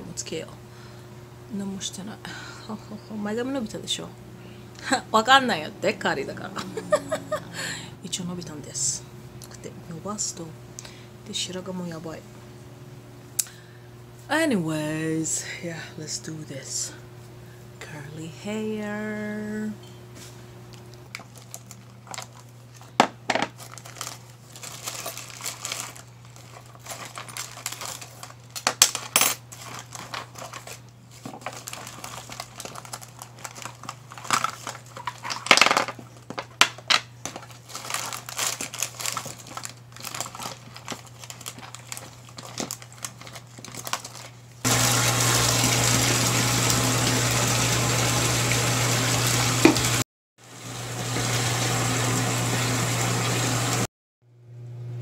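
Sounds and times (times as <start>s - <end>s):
plastic crinkling: 20.7s - 46.0s
tap running into plastic basin: 49.6s - 50.0s.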